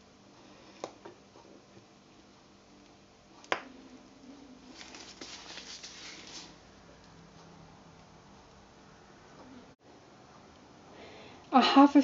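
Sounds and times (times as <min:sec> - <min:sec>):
plastic bag rustling: 0:04.6 - 0:06.6.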